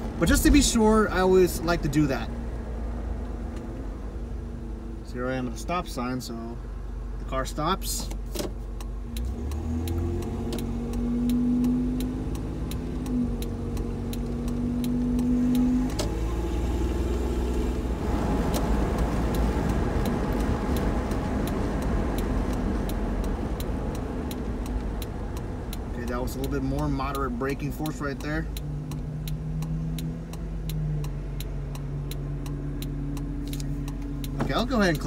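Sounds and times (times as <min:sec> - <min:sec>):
road and tyre noise: 0:00.0 - 0:35.0
light regular ticking: 0:08.0 - 0:35.0
car engine accelerating: 0:08.6 - 0:35.0.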